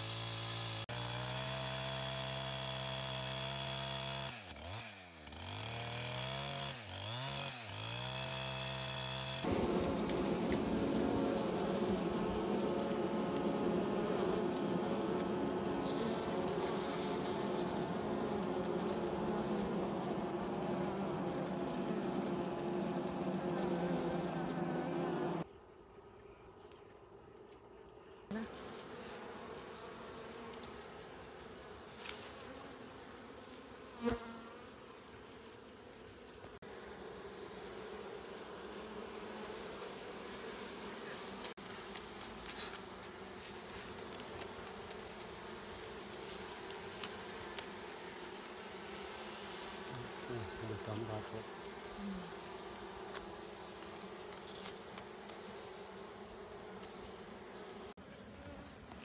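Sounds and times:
bees buzzing: 0.0s - 26.2s, 28.2s - 59.0s.

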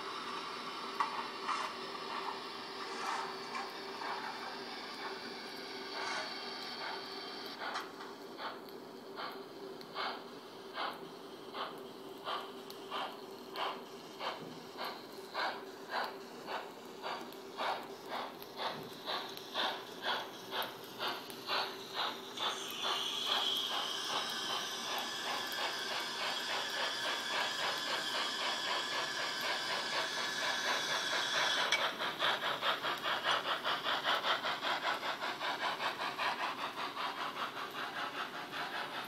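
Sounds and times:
model locomotive steam chuffs: 0.0s - 39.0s
steady steam hiss: 0.0s - 39.0s.

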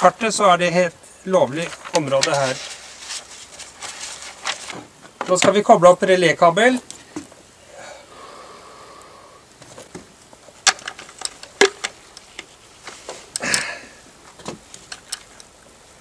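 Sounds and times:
cable rustling: 1.5s - 5.6s, 9.6s - 15.5s.

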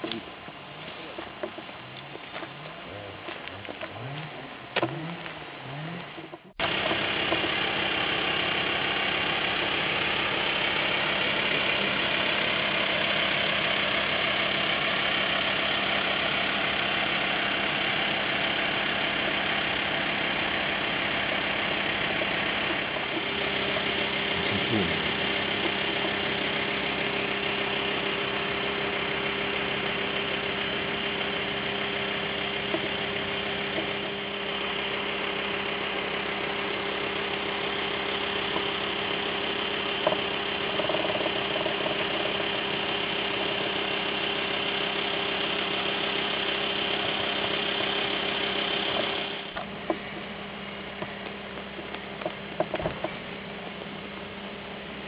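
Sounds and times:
engine idling: 0.0s - 55.0s.

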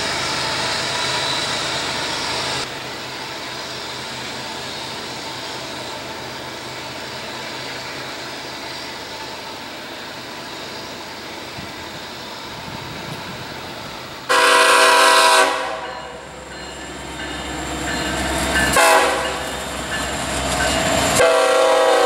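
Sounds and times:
diesel locomotive engine drone: 0.0s - 22.0s.

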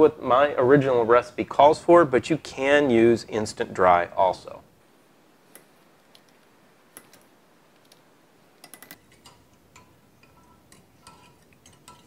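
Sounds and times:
fork clinking against glass: 8.9s - 12.0s.

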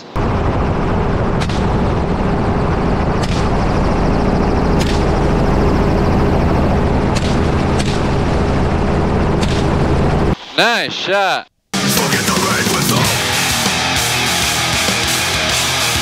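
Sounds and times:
helicopter droning: 0.0s - 10.4s.

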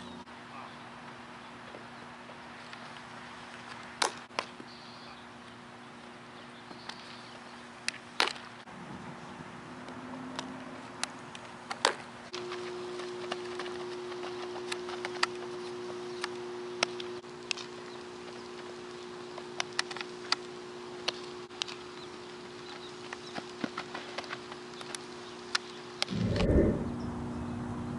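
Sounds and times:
steady low hum: 25.9s - 27.9s.

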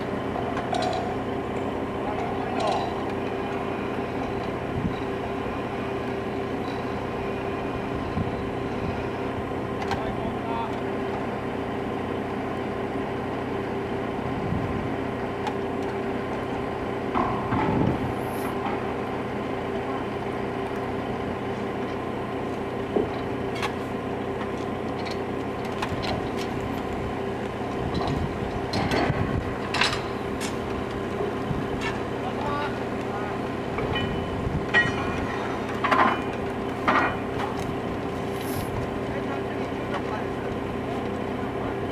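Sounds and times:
engine idling hum: 0.0s - 41.9s
knocks and clanks: 17.1s - 18.0s, 27.8s - 30.6s, 33.8s - 37.7s.

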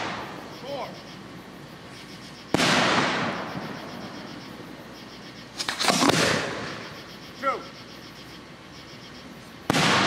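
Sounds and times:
fireworks bangs: 0.0s - 4.7s, 5.4s - 7.1s, 9.6s - 10.0s.

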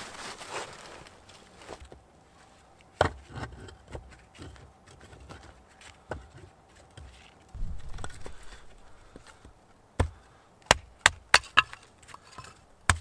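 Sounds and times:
dull thuds: 7.6s - 11.2s.

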